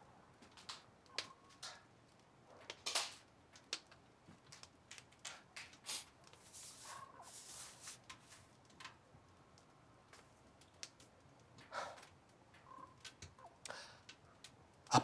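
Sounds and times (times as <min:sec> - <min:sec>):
small handling clicks and rustles: 0:07.6 - 0:14.6.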